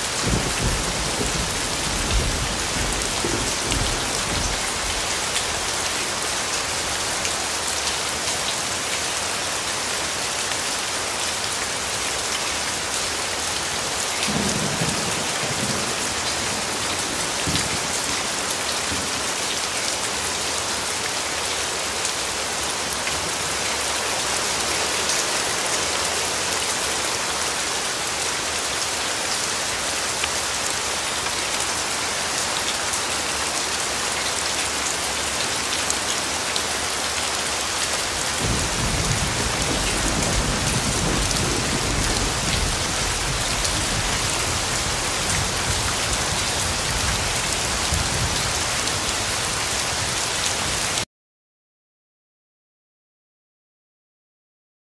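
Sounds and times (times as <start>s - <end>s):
steady rain hiss: 0.0s - 51.0s.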